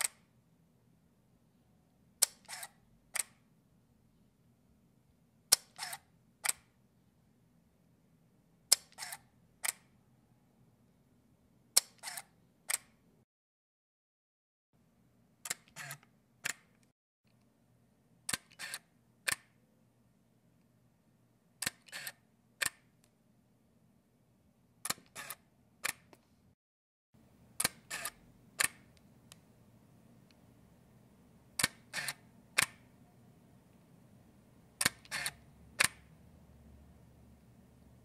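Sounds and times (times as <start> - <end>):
camera shutter clicks: 2.4 - 2.7, 5.7 - 6.6, 8.9 - 9.8, 12.0 - 12.8, 15.5 - 16.0, 18.3 - 18.8, 21.6 - 22.2, 24.9 - 25.4, 27.6 - 28.8, 31.6 - 32.7, 34.8 - 36.0.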